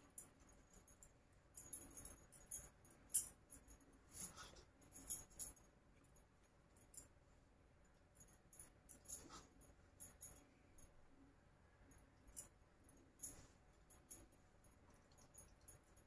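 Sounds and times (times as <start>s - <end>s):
metal bangles jingling: 0.0s - 5.7s, 8.2s - 10.4s.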